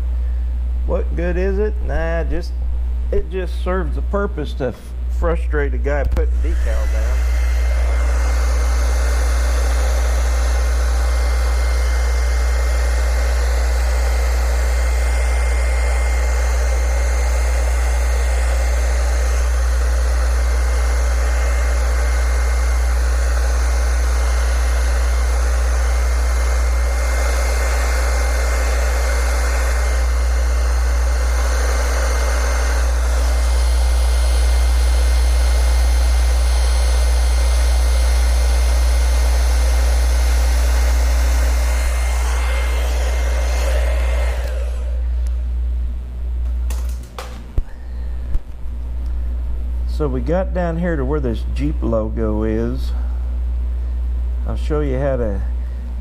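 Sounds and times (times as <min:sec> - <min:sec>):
hair dryer blowing: 0:06.2 - 0:45.6, 0:46.5 - 0:50.1.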